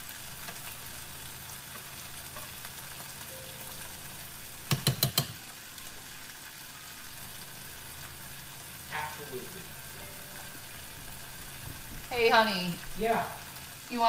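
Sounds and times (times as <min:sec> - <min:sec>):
food sizzling in a pan: 0:00.0 - 0:14.0
utensil tapping cookware: 0:04.7 - 0:05.4.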